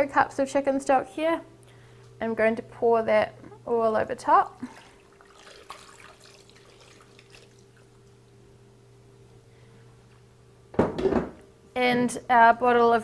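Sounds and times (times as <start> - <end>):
liquid trickling and dripping: 4.5 - 8.4.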